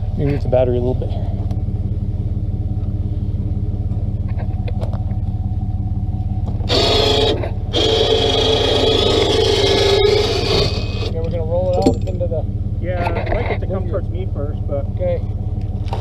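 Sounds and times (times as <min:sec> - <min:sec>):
vehicle engine idling: 0:00.0 - 0:16.0
electric winch whining: 0:06.6 - 0:11.2.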